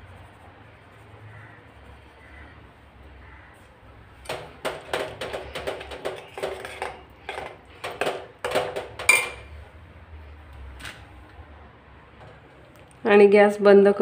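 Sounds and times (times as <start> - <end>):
spoon scraping metal pot: 5.0 - 9.6.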